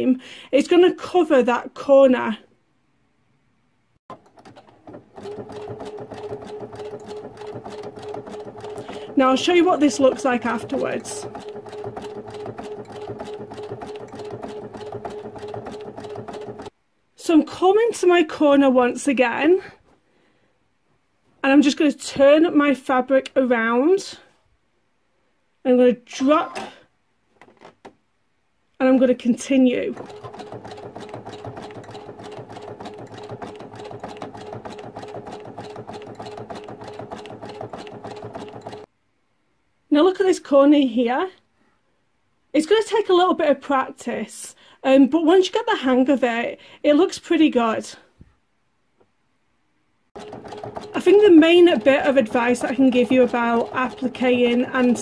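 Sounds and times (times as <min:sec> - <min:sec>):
sewing machine running: 0:04.1 - 0:16.7, 0:29.9 - 0:38.9, 0:50.2 - 0:55.0.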